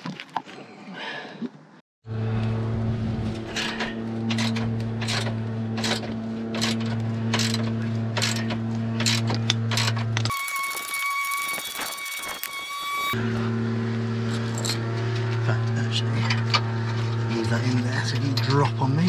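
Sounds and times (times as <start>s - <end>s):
lawnmower engine hum: 2.1s - 10.2s, 13.2s - 19.0s.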